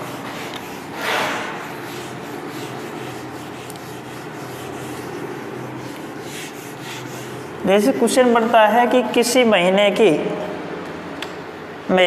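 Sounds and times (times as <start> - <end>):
eraser rubbing on whiteboard: 0.0 - 8.1.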